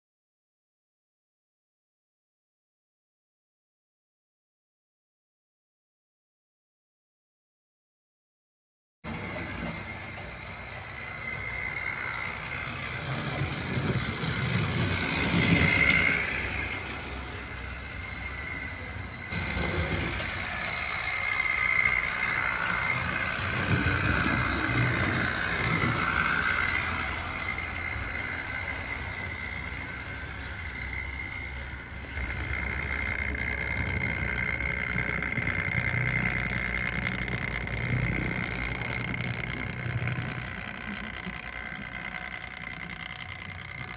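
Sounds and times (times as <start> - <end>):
model train motor whine: 9.1 - 43.9
wheels rumbling on track: 9.1 - 43.9.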